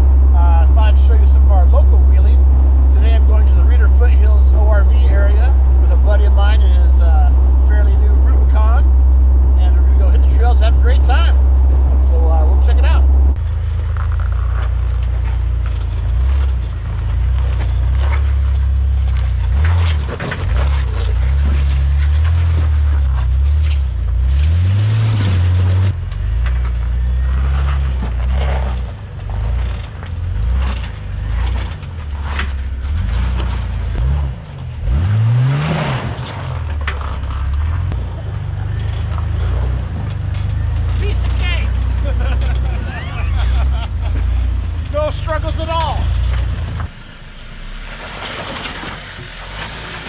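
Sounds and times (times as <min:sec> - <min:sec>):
off-road vehicle engine crawling: 0:00.0 - 0:50.0
tyres scraping and crunching on rock: 0:12.1 - 0:50.0.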